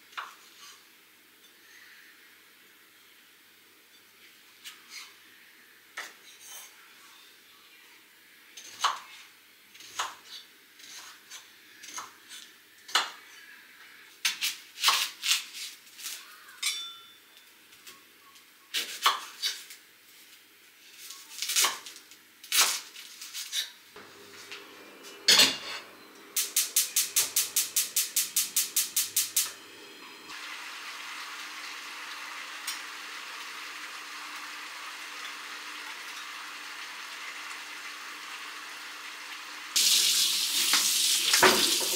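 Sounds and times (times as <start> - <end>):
dishes and utensils clinking: 16.6 - 19.7, 24.2 - 26.4.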